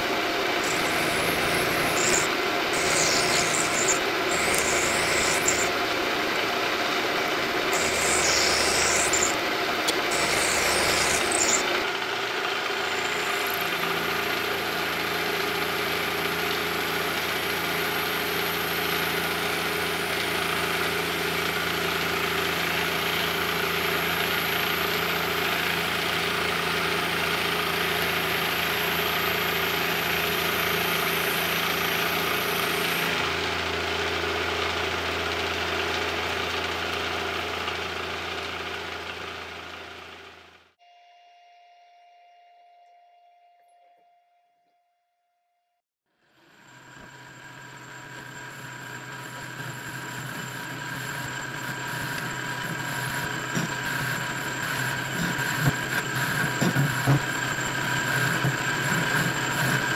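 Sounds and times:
milling machine motor hum: 0.0 - 35.3, 46.3 - 59.9
end mill scraping steel: 0.6 - 5.8, 7.7 - 11.8, 47.9 - 59.9.

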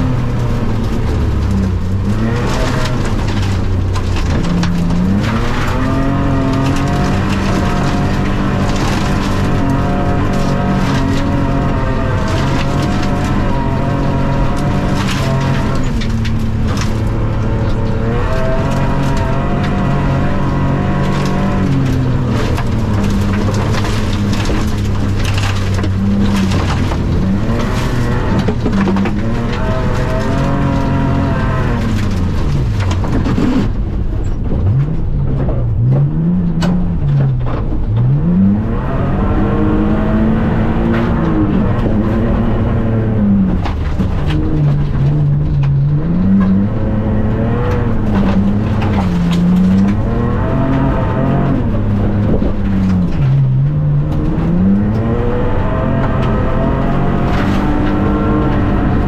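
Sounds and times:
gravel hitting car: 0.0 - 59.0
rally car engine revving: 0.0 - 59.0.

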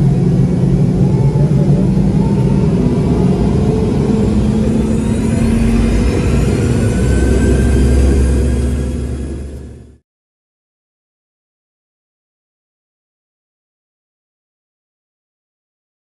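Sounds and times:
jet engines humming and whining: 0.0 - 10.0.

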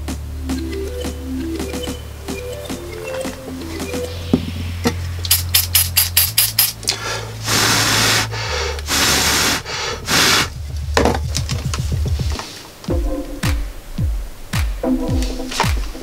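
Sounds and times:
electronic music with bass line: 0.0 - 9.2, 10.0 - 16.0
loud noisy swishes: 7.4 - 12.8.

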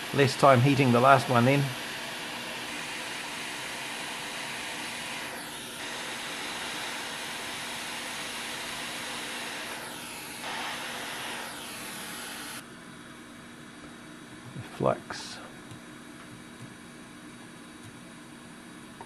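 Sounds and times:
hot air blower hissing: 0.0 - 12.6.

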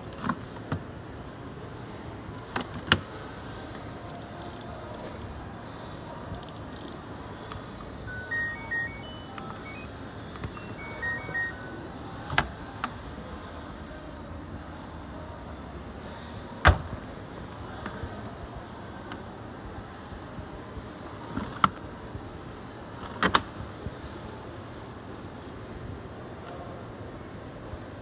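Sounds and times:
short electronic beeps: 8.1 - 12.0.

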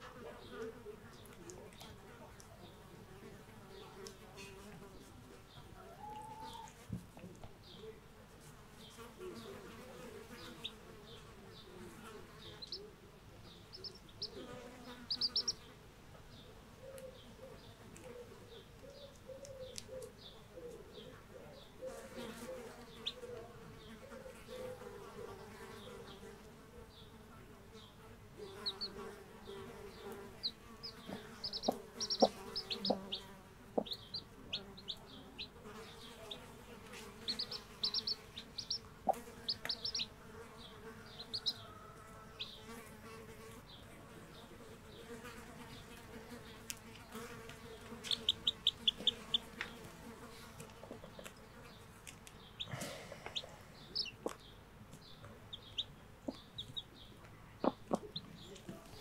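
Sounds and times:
chicks peeping: 3.8 - 8.0, 8.9 - 15.7, 16.7 - 26.2, 27.8 - 43.2, 43.8 - 59.0
steady low buzzing hum: 27.3 - 41.6.

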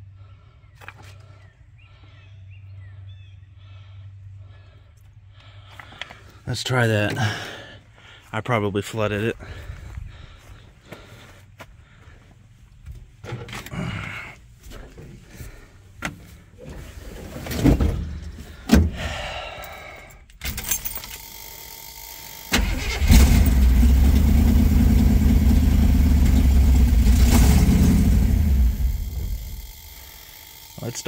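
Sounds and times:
car engine cranking and running: 20.2 - 31.0.

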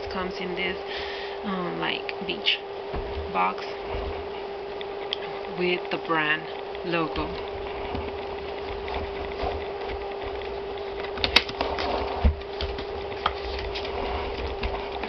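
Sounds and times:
steady hum: 0.0 - 15.0
cardboard scraping and rustling: 7.6 - 15.0.

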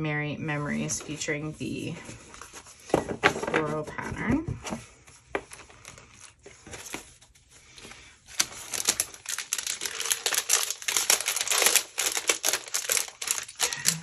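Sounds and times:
plastic packaging crinkling: 5.4 - 14.0.

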